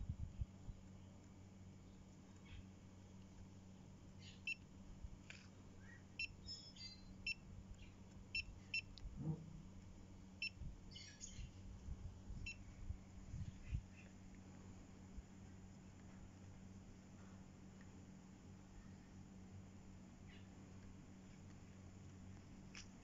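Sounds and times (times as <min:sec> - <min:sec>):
faint bird chirps: 0:01.8 - 0:02.8, 0:04.2 - 0:04.6, 0:05.8 - 0:08.9, 0:10.4 - 0:11.6, 0:13.4 - 0:14.2, 0:20.2 - 0:20.6.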